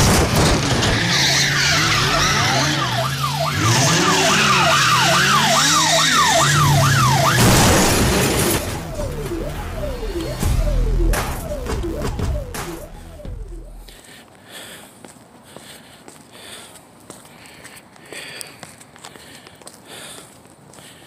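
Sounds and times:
tyres squealing: 0:00.6 - 0:06.6
police siren yelping: 0:00.8 - 0:13.9
car engine running: 0:06.6 - 0:13.9.

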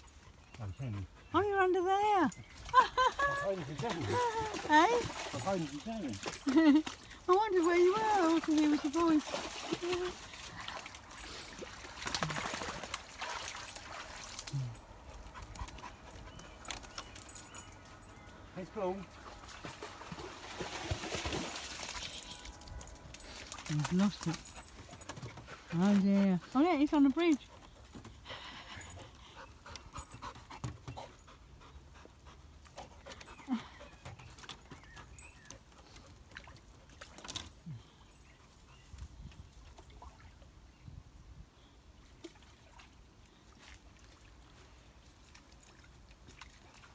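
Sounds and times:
dog panting: 0:27.4 - 0:35.2.

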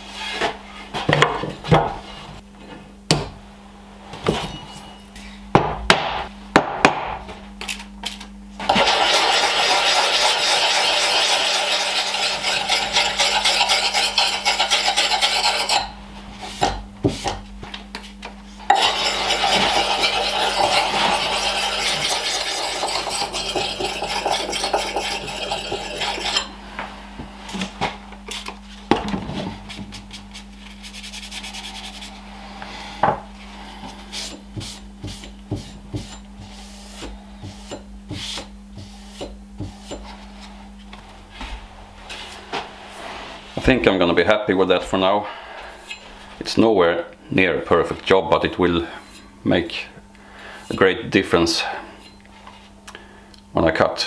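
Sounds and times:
sharpening stone grating on axe: 0:09.1 - 0:15.9, 0:18.7 - 0:26.5.

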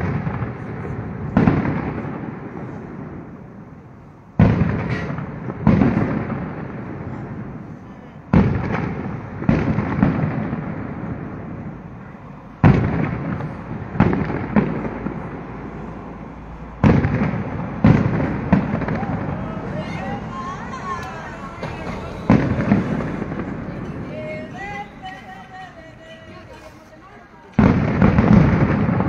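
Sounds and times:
echoing rumble: 0:08.6 - 0:26.3.

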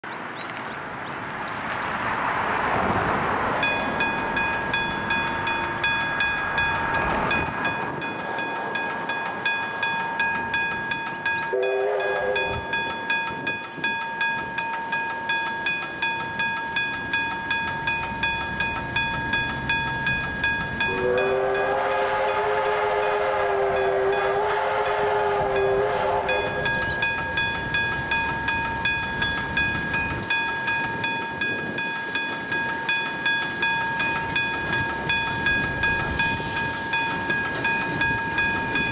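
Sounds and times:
train horn blasts: 0:11.5 - 0:12.8, 0:20.8 - 0:27.4
level crossing bell ringing: 0:25.1 - 0:38.9.

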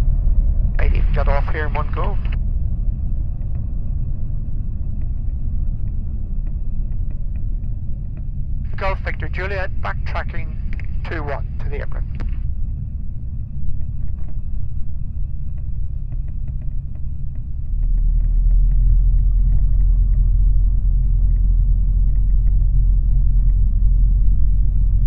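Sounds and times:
faint high whine: 0:00.0 - 0:25.0
microlight engine and propeller rumble: 0:00.0 - 0:25.0
light ticks: 0:04.8 - 0:09.4, 0:10.6 - 0:12.4, 0:15.2 - 0:24.4.

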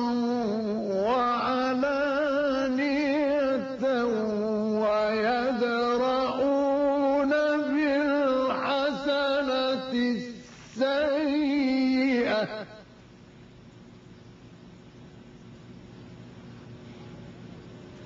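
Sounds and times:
man reciting melodically: 0:00.0 - 0:13.0.

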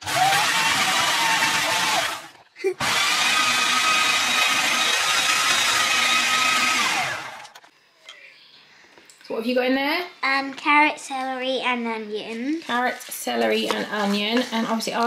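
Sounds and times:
food processor motor whining: 0:00.0 - 0:07.6.

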